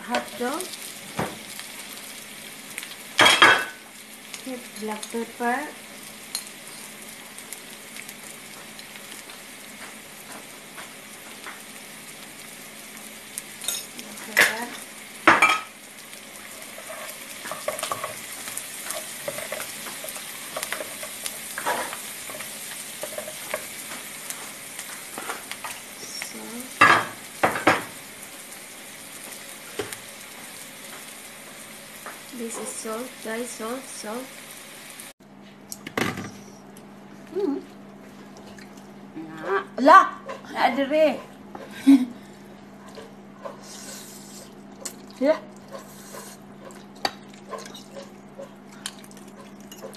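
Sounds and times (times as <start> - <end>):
sausages sizzling in frying pan: 0.0 - 35.2.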